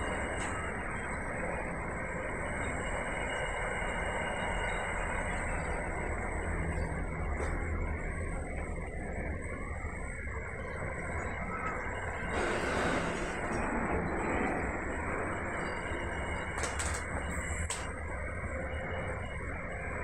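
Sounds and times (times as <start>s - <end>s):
freight train wheels clattering on rails: 15.6s - 17.9s.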